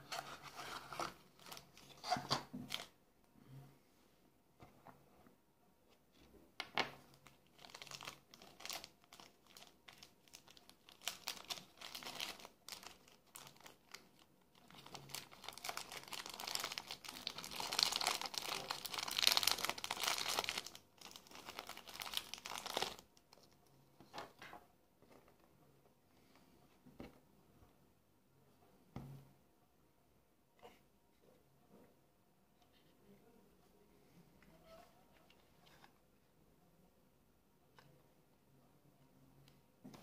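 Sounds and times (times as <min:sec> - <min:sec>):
plastic bag crinkling: 0:07.2 - 0:23.5.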